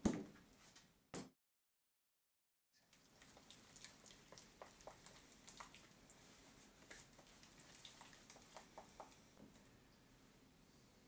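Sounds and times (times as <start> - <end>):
spatula stirring plaster in bowl: 2.8 - 9.4.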